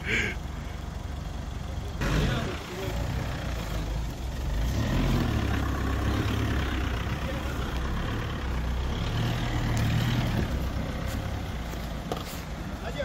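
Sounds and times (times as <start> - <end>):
off-road vehicle engine droning: 0.0 - 13.0.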